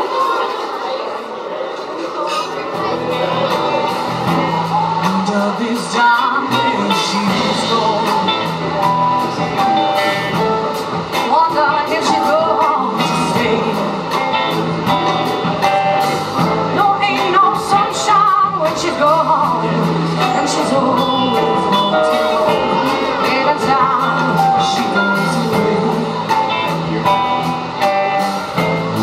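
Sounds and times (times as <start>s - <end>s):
live pop-rock band: 2.4s - 29.0s
person singing: 3.1s - 29.0s.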